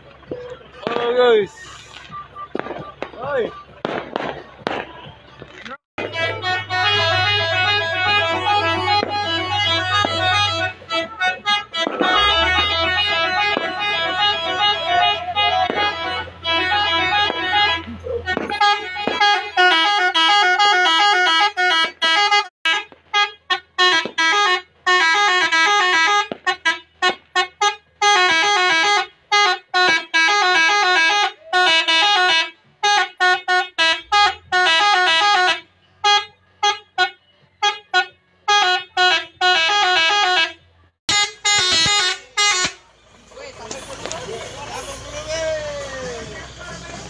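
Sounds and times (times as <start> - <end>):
musical air horn bursts: 6.0 - 42.9.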